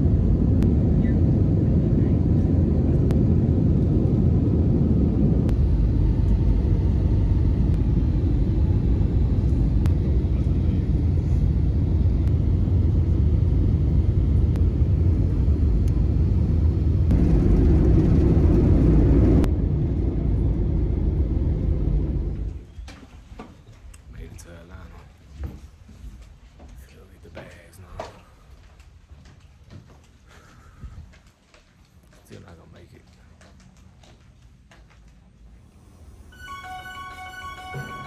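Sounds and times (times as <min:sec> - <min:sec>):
airliner cabin engine rumble: 0:00.0 - 0:22.8.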